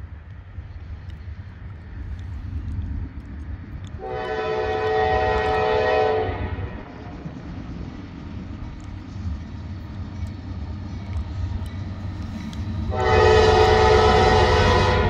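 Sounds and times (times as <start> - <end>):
locomotive rumble: 0.0 - 15.0
locomotive air horn blast: 4.0 - 6.8, 12.9 - 15.0.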